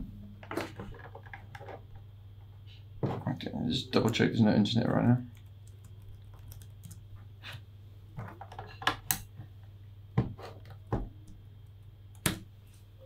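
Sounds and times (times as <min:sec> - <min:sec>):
low steady hum: 0:00.0 - 0:13.0
cables and plugs clicking: 0:05.3 - 0:07.0.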